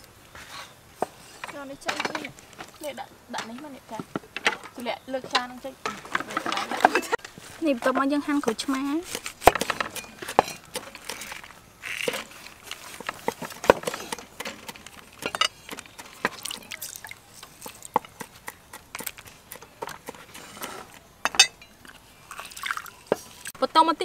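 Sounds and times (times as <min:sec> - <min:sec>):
juice dripping into bowl: 0:21.8 - 0:23.5.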